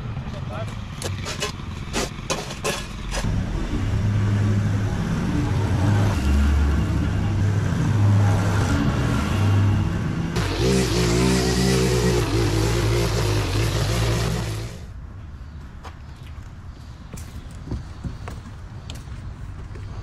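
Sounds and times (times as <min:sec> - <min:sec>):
lawn mower engine: 0:10.4 - 0:14.8
string trimmer engine: 0:10.4 - 0:14.8.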